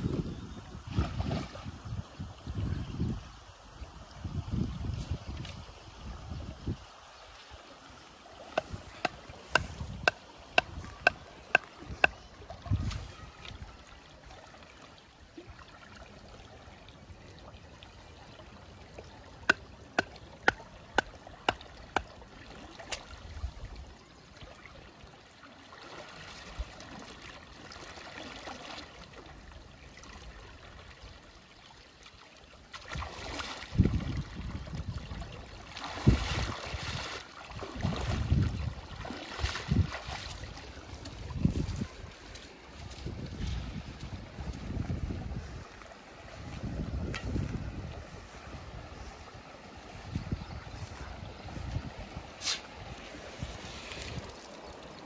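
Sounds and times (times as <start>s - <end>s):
legs wading through water: 7.2s - 55.0s
canal water running: 8.1s - 12.2s, 19.2s - 22.7s, 53.7s - 55.0s.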